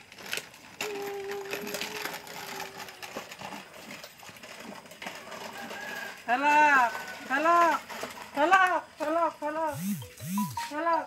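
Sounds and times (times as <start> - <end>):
plastic wheels rattling on concrete: 0.0 - 9.9.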